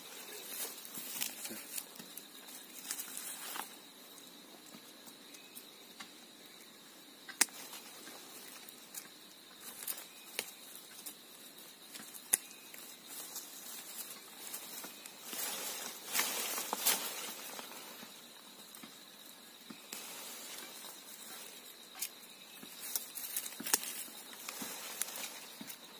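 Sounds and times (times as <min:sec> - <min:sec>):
stalks snapping: 0:07.3 - 0:07.8, 0:11.9 - 0:13.4, 0:21.9 - 0:25.8.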